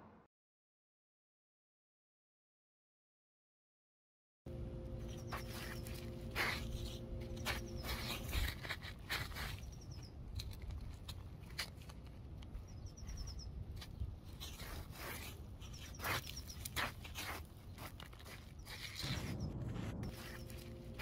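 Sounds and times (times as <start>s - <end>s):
bare feet on gravelly ground: 4.5s - 21.0s
small bird chirping: 4.9s - 10.2s, 12.5s - 14.9s, 15.6s - 21.0s.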